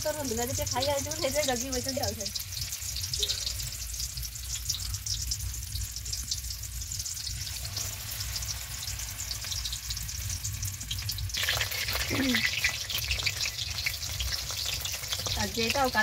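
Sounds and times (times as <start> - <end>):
food frying in hot oil: 0.0 - 16.0.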